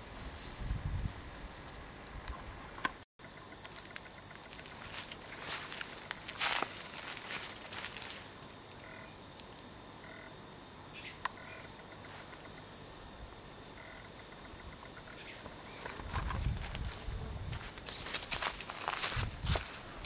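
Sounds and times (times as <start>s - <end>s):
insect chirping: 0.8s - 20.0s.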